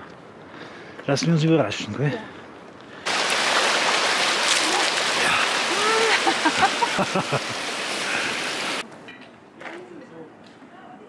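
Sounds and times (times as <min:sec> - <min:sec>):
rush of running water: 0:03.0 - 0:08.8.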